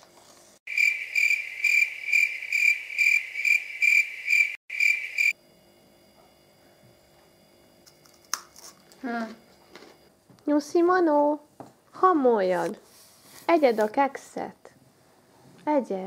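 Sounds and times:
cricket chirping: 0.7s - 6.8s.

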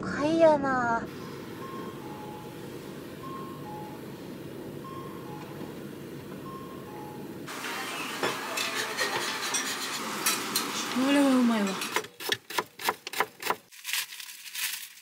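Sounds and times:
city street hum: 0.0s - 13.7s
crossing signal two-tone chime: 1.3s - 8.2s
food sizzling on griddle: 7.5s - 11.8s.

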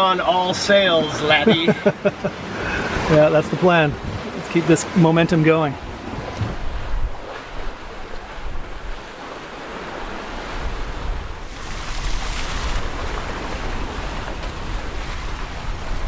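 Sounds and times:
water rushing along hulls: 0.0s - 16.0s
wind on microphone: 5.8s - 16.0s.

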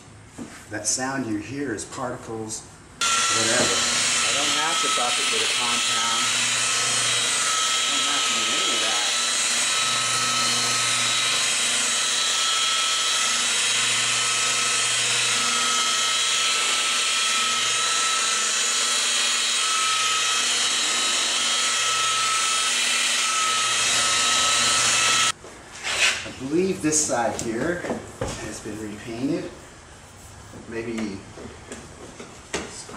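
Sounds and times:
rotary polisher motor whine: 3.0s - 25.4s
polishing pad scuffing: 18.0s - 32.9s.

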